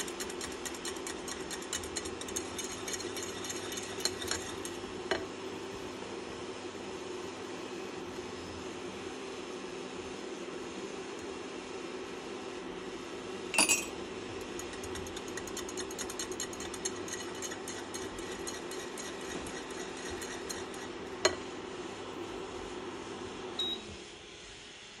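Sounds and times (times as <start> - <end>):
spatula stirring light ticks: 0.0 - 4.8, 14.4 - 20.9
electric hob humming: 0.0 - 25.0
metal spoon clinking on pot: 13.6 - 13.9.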